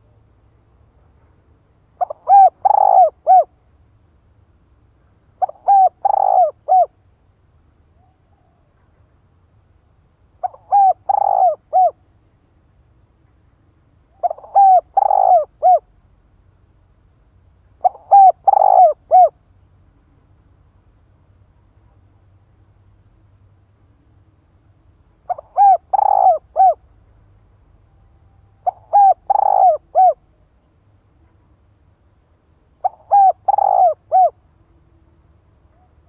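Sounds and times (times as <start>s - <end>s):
dove cooing: 2.0s - 3.5s, 5.4s - 6.9s, 10.4s - 12.0s, 14.2s - 15.9s, 17.8s - 19.4s, 25.3s - 26.8s, 28.6s - 30.2s, 32.8s - 34.4s.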